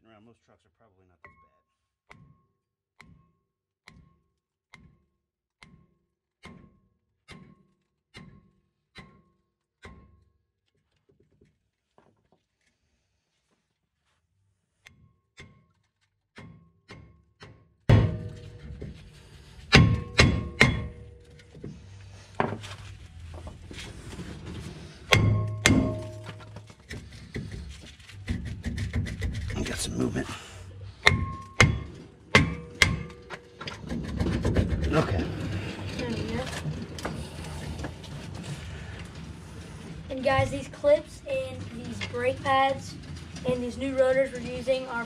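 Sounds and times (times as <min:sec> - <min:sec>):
hammer knocking on metal: 0:19.7 - 0:21.1, 0:25.1 - 0:26.5, 0:31.0 - 0:35.0.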